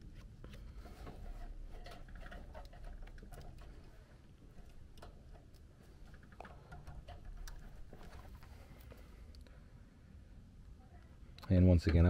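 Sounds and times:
hands rustling wires: 0:00.0 - 0:09.5
low steady hum: 0:00.0 - 0:12.0.

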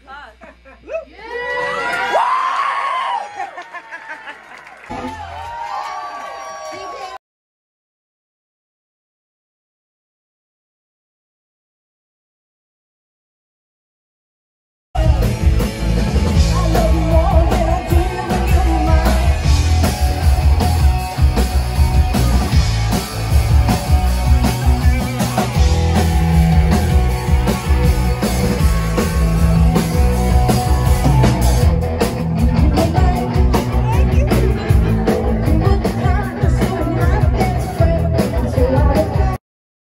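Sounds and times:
live rock band playing: 0:15.0 - 0:39.4.

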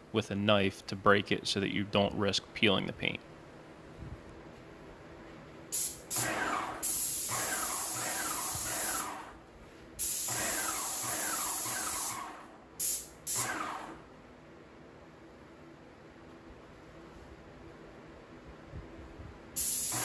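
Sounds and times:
paint sprayer hissing: 0:05.7 - 0:09.3, 0:10.0 - 0:13.6, 0:19.6 - 0:20.0.

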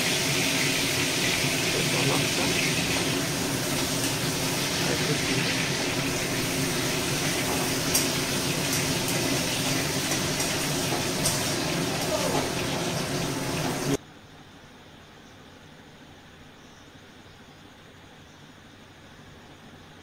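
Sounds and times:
leaves and chillies sizzling in oil: 0:00.0 - 0:14.0.

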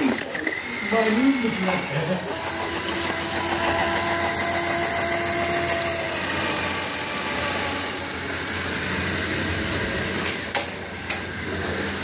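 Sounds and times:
toy motor whining: 0:00.0 - 0:08.5.

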